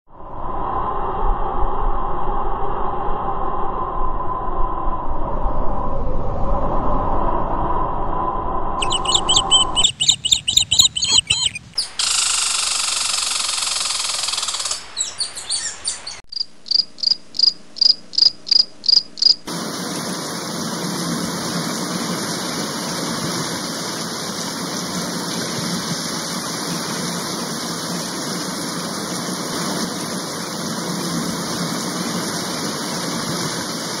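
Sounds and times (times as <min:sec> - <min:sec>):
insect chirping: 0:08.8 - 0:19.5
steady rushing hiss: 0:11.6 - 0:16.0, 0:19.1 - 0:34.0.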